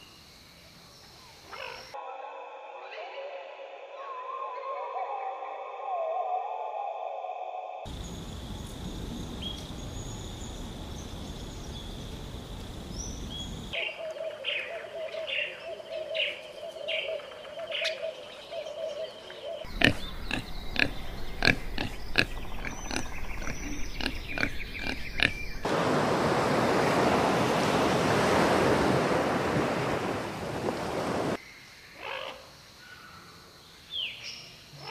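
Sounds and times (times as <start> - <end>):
steady hum: 7.9 - 13.8
animal calls: 19.6 - 25.7
high bird chirps: 19.6 - 25.7.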